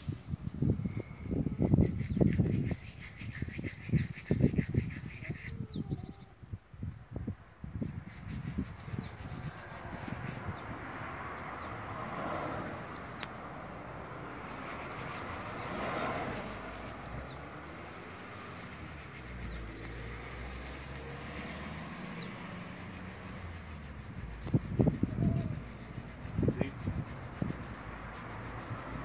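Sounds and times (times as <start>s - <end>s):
faint bird chirps: 0.8s - 6.5s
distant traffic: 7.4s - 29.0s.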